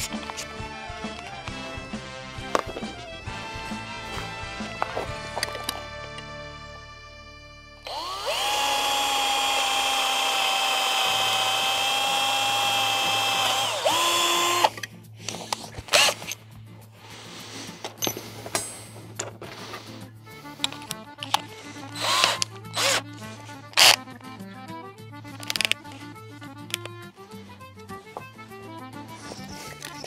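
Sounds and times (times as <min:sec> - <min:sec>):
cordless drill spinning: 0:00.0 - 0:05.9, 0:07.8 - 0:16.4, 0:20.5 - 0:24.1, 0:25.2 - 0:28.4.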